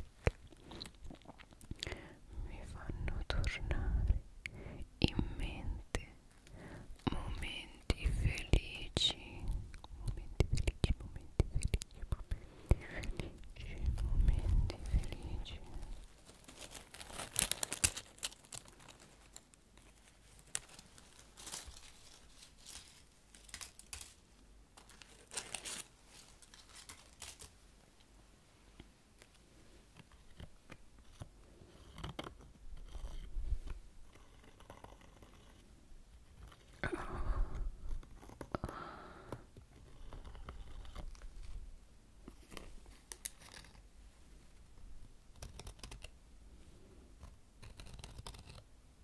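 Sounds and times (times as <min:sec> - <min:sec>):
dry leaves crunching: 0:20.5 - 0:24.2.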